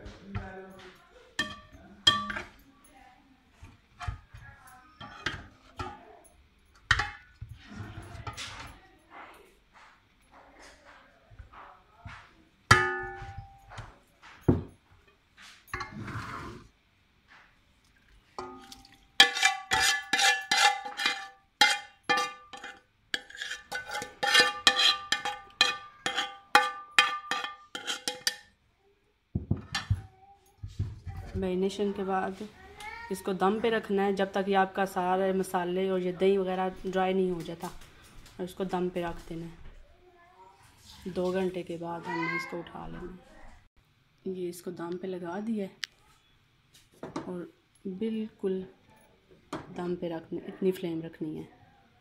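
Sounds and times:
metal cookware clattering: 0.0 - 2.7, 3.6 - 8.8, 12.7 - 13.9, 15.7 - 16.7, 18.4 - 28.6, 29.4 - 30.1
metal bowl ringing: 1.4 - 2.6, 12.7 - 13.7, 18.4 - 22.7, 24.3 - 28.4
spoon scraping metal bowl: 15.8 - 16.7, 18.6 - 28.5.

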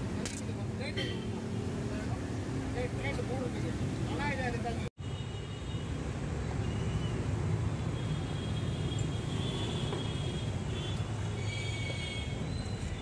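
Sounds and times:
low traffic rumble: 0.0 - 13.0.

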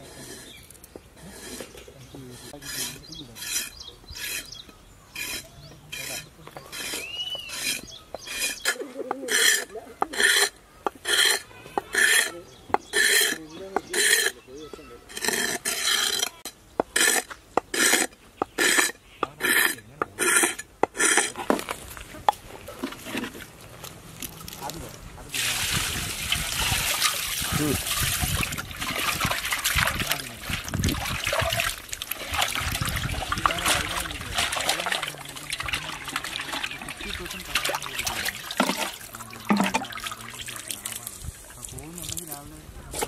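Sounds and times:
blade scraping on whetstone: 0.0 - 14.4, 15.1 - 21.5.

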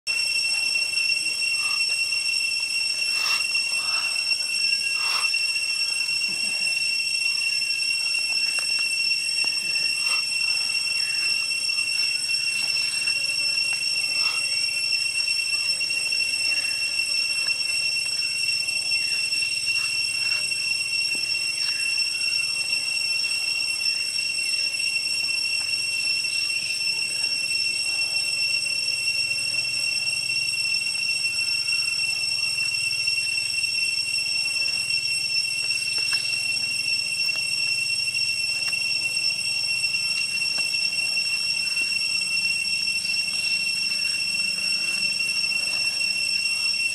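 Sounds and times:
insects droning: 0.1 - 46.9.

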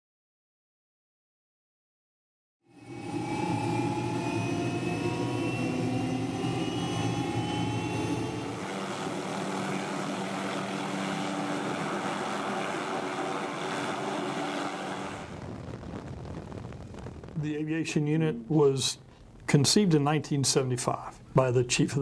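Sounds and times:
helicopter rotor drone: 2.7 - 15.4
helicopter turbine whine: 2.7 - 16.4.

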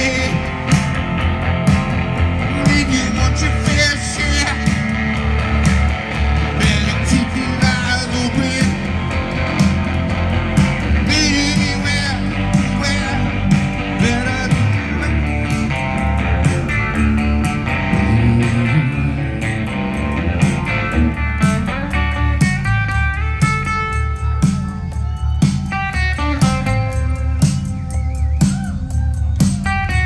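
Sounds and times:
person singing: 0.0 - 0.9, 2.4 - 5.0, 6.4 - 9.2, 10.9 - 15.8, 17.6 - 20.3
electric guitar: 0.0 - 30.0
steady drum beat: 0.0 - 30.0.

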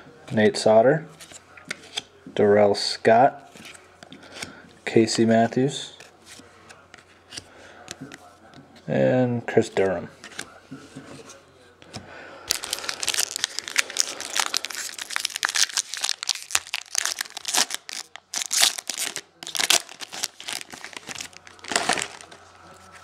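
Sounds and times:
foil wrapper tearing and crinkling: 12.5 - 22.4.

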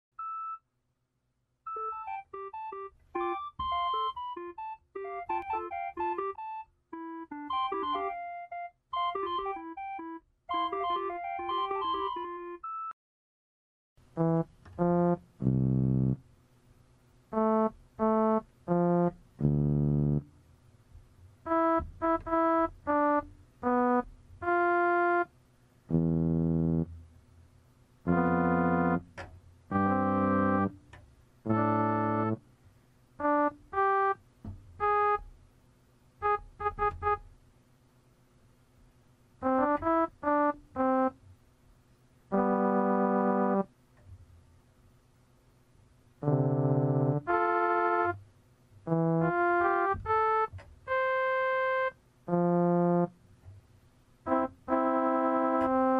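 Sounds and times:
electronic keyboard notes and chords: 1.7 - 12.7, 14.2 - 16.2, 17.3 - 20.3, 21.5 - 25.3, 28.1 - 29.1, 29.7 - 30.8, 31.5 - 32.4, 42.3 - 43.7, 46.2 - 48.2, 48.9 - 53.1, 54.3 - 55.9.

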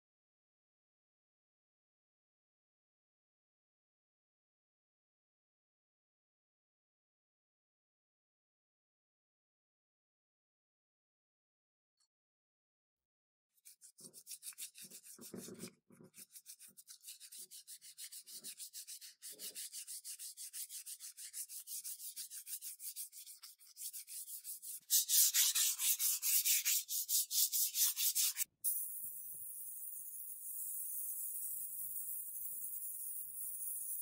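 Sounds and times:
sandpaper rubbing on metal pipe: 13.6 - 34.0.

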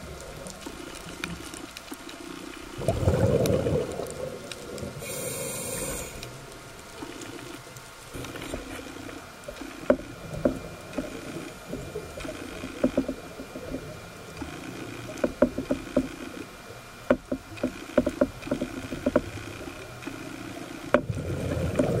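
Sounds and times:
regulator breathing bubbles underwater: 4.9 - 6.4
sharp clicks and knocks: 12.2 - 13.7, 15.0 - 16.3, 17.0 - 19.6.

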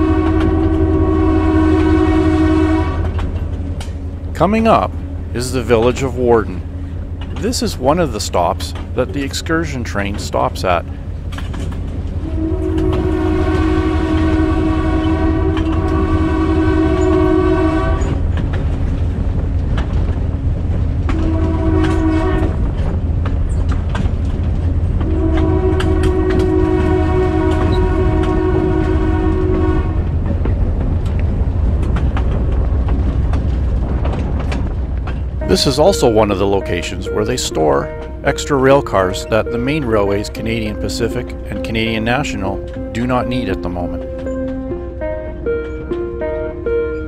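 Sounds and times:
locomotive air horn blasts: 0.0 - 8.8, 12.2 - 18.2, 21.1 - 22.6, 25.0 - 30.1
rumble of moving train: 0.0 - 47.0
wheels clicking over rail joints: 2.9 - 16.2, 16.8 - 47.0.

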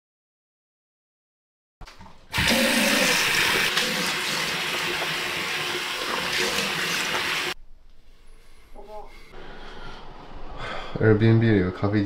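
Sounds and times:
running water rushing: 2.3 - 7.6.

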